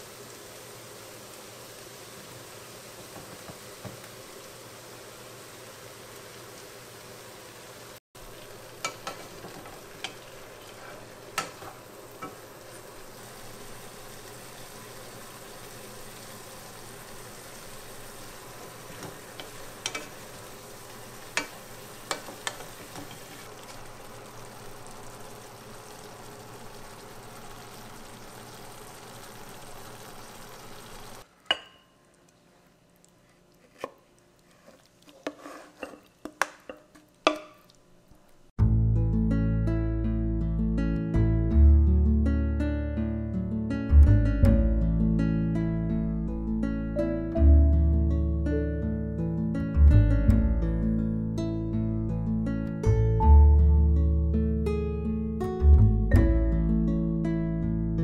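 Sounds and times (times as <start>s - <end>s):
food sizzling in a pot: 0.0s - 32.2s, 33.8s - 38.5s.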